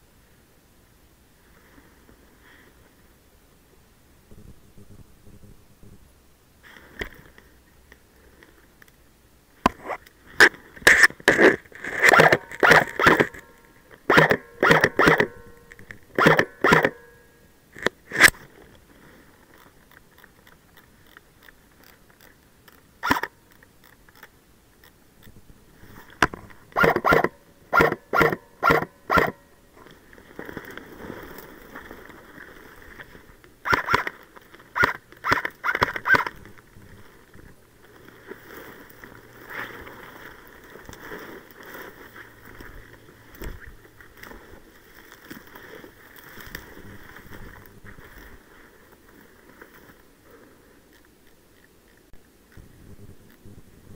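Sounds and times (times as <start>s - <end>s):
airsoft rifle firing: 11.9s - 13.5s, 14.1s - 15.5s, 16.2s - 17.1s, 26.8s - 29.4s, 33.6s - 34.1s, 34.8s - 36.3s.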